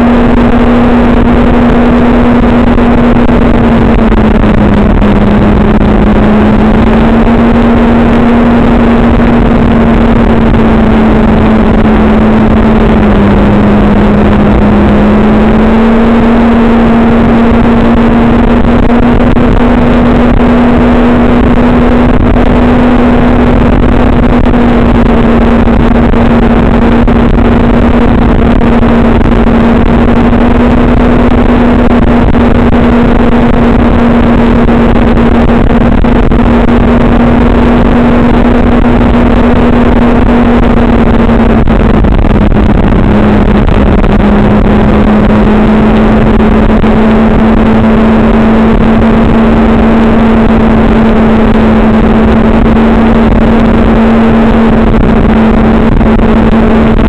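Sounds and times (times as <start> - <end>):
constant rushing noise: 0.0 - 57.0
vehicle engine running: 0.0 - 57.0.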